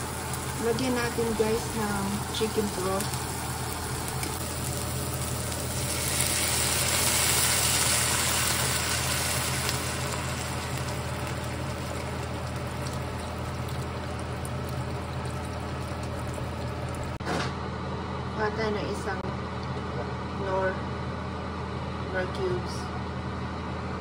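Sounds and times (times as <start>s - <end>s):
broth pouring into pan: 0.0s - 17.2s
pan sizzling: 0.0s - 17.2s
low steady hum: 0.0s - 24.0s.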